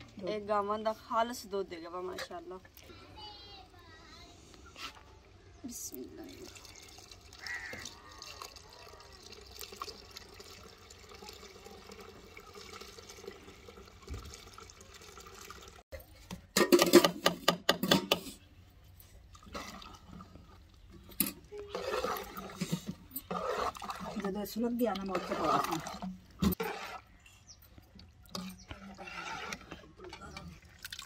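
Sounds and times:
milk pouring into pot: 0:06.3 - 0:15.8.

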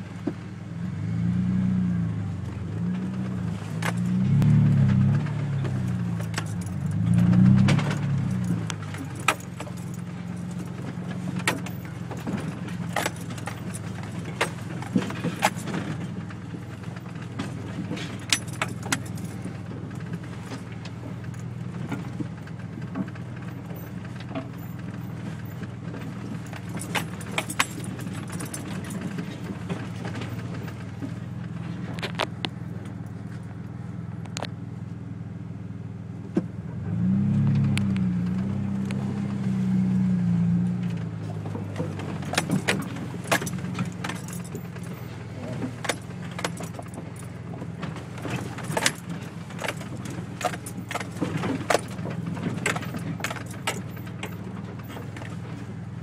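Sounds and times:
truck engine revving: 0:00.8 - 0:20.4, 0:36.7 - 0:55.0
cab rattling and knocking: 0:03.1 - 0:33.7, 0:40.8 - 0:56.0.

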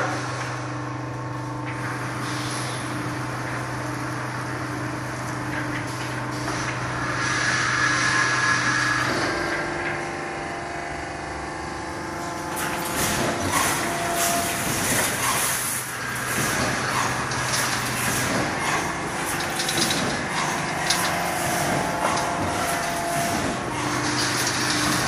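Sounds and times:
electrical hum: 0:00.0 - 0:25.0
welding machine clatter: 0:12.2 - 0:25.0.

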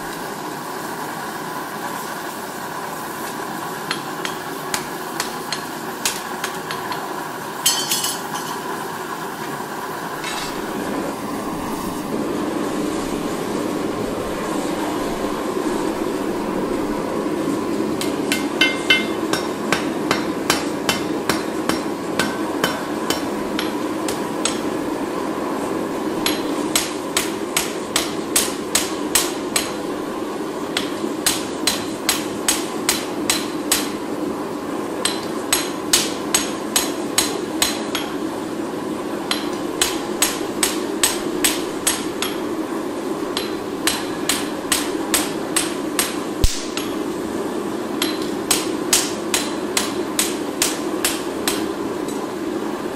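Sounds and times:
steady hum: 0:00.0 - 0:52.9
hammer blows on anvil: 0:18.0 - 0:23.8, 0:43.4 - 0:47.0.

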